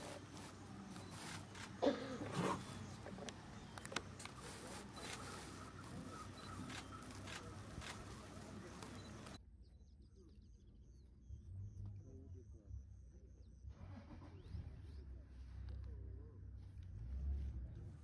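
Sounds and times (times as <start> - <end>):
sharp clicks: 0.0 - 2.0, 2.6 - 9.4
birds chirping: 0.0 - 10.7.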